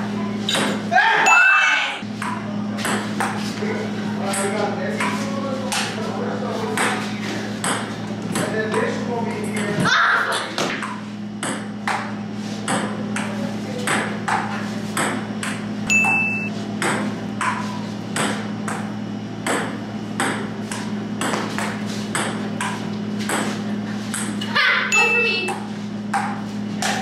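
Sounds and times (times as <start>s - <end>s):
ping-pong ball hits: 7.6s - 8.9s, 10.6s - 13.3s, 13.9s - 23.5s, 24.1s - 27.0s.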